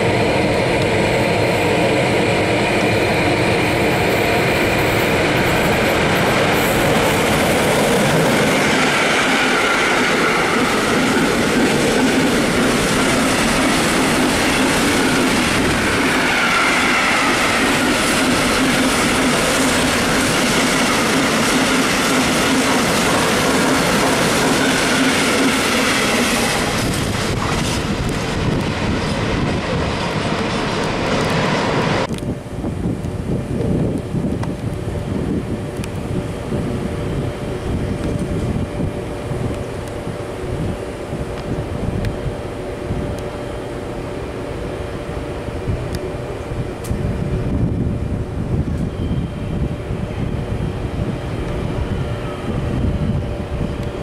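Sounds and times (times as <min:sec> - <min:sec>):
freight train wheels rumbling: 0:00.0 - 0:54.0
high wheel squeal: 0:15.4 - 0:19.5, 0:48.8 - 0:49.7.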